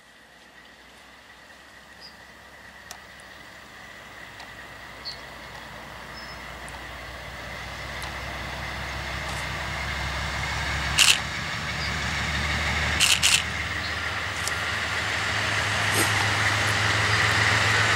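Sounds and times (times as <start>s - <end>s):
diesel locomotive engine rumble: 0.0s - 17.9s
sharp clicks: 11.0s - 11.3s, 13.0s - 13.6s.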